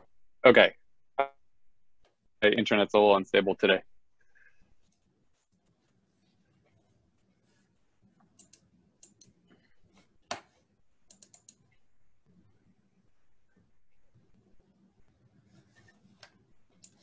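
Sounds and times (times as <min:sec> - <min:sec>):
computer keyboard typing: 0:11.0 - 0:11.8.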